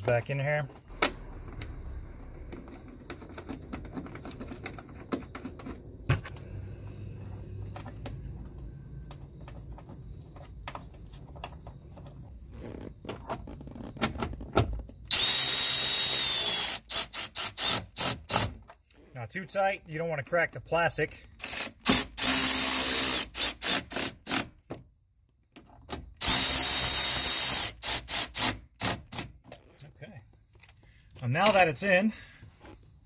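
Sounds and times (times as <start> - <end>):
parts clicking and rattling: 0.0 - 6.5
power driver whining: 15.1 - 18.5.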